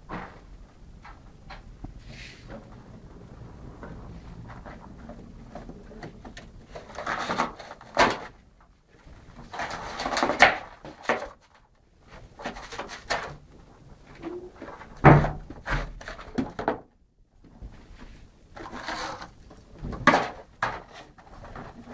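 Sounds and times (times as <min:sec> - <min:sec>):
loud thump: 0:00.0 - 0:00.5.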